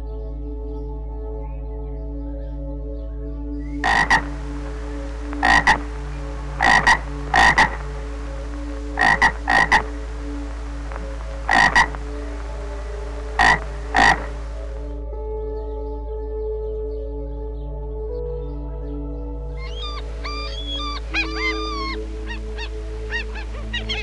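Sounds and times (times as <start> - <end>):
frog croaking: 3.7 - 14.8, 19.6 - 24.0.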